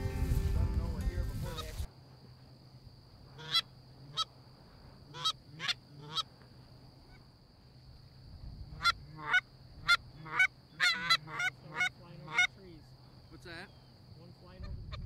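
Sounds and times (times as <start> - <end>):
goose honking: 5.1 - 6.2, 8.8 - 12.6.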